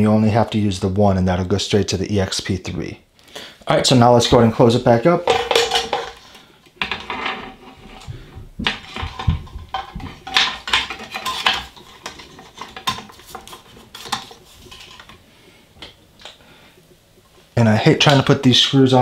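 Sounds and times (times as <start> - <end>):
metal cover clinking and rattling: 5.2 - 7.5, 8.8 - 15.2.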